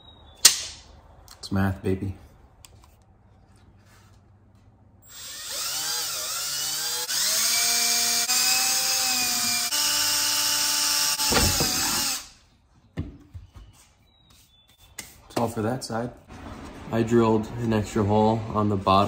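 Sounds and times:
cordless drill drilling plastic: 5.1s - 12.3s.

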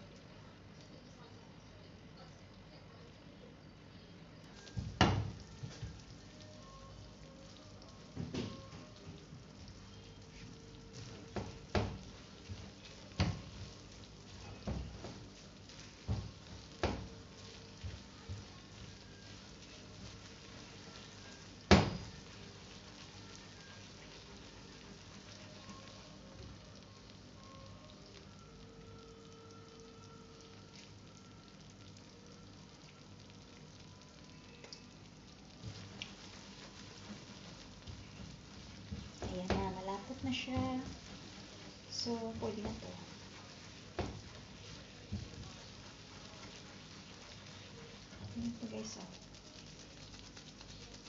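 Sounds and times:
faint sizzling in frying pan: 0.0s - 51.0s
spatula knocking and scraping pan: 37.0s - 48.3s.

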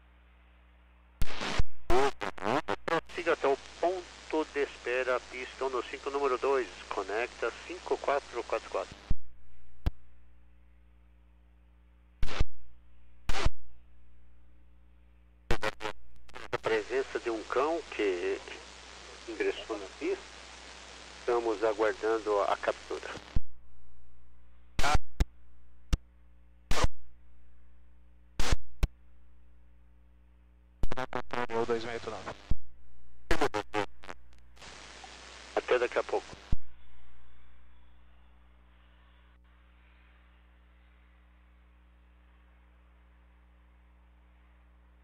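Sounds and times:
radio low hum: 0.2s - 29.9s, 30.8s - 40.6s
static bursts: 1.2s - 10.3s, 12.2s - 13.9s, 15.5s - 26.0s, 26.6s - 27.2s, 28.3s - 29.0s, 30.8s - 38.4s
low hum: 9.1s - 17.5s, 23.2s - 35.5s
radio click: 24.8s - 25.3s.

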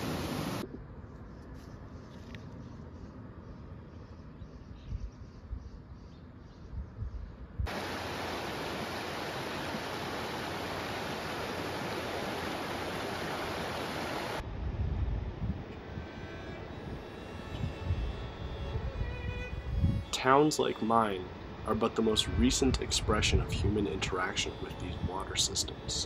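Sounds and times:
river rapids rushing: 7.7s - 14.4s
gusty low rumble: 14.4s - 20.2s.

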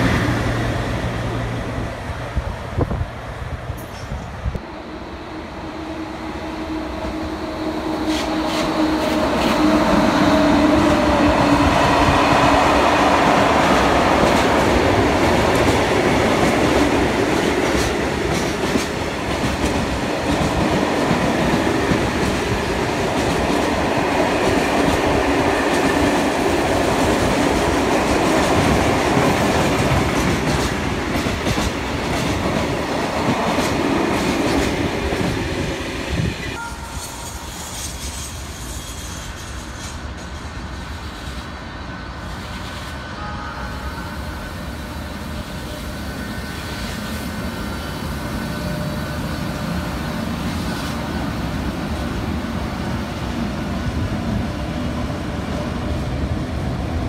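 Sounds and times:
electric locomotive hum: 0.0s - 57.0s
train wheels clickety-clack: 8.0s - 35.6s.

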